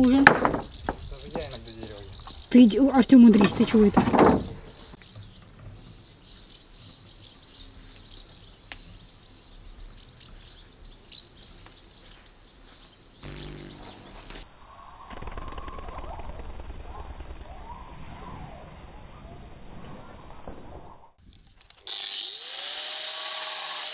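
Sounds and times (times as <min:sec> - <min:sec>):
swallows twittering: 0:00.0 - 0:15.2
outdoor background noise: 0:00.0 - 0:23.9
brief low hum: 0:13.2 - 0:20.4.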